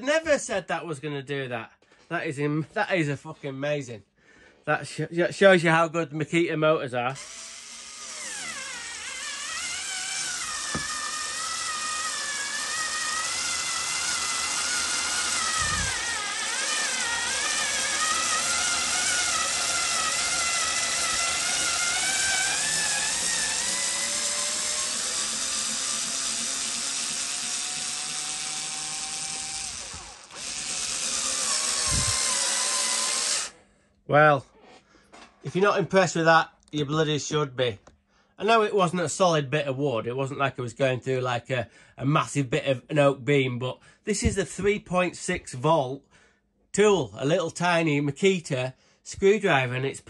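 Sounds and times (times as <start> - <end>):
cordless screwdriver motor whine: 7.2 - 33.6.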